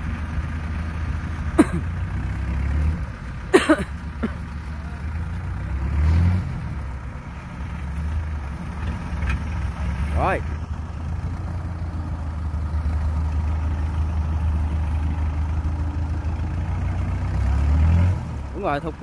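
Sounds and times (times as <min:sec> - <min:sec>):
diesel engine droning: 0:00.0 - 0:19.0.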